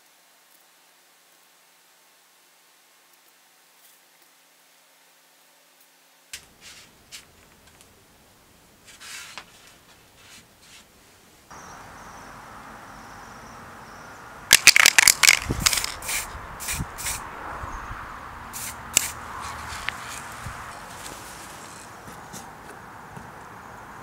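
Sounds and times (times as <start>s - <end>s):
outdoor background noise: 0.0s - 24.0s
spray can rattling: 14.5s - 17.2s, 18.5s - 21.9s.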